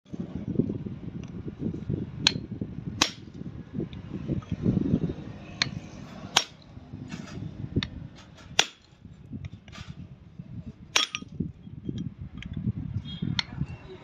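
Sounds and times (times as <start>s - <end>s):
hammer striking chisel on steel: 5.6s - 6.6s, 8.3s - 8.9s, 11.0s - 11.3s.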